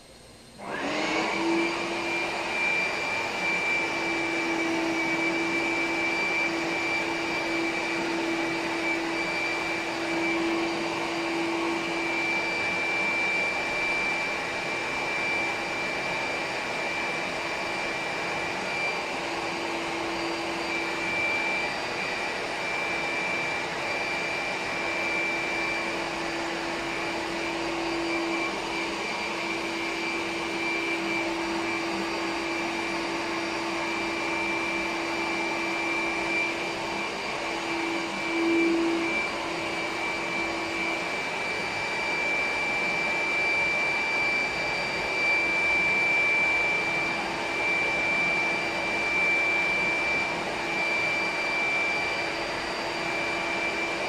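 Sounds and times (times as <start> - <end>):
leaf blower running: 0.6 - 54.0.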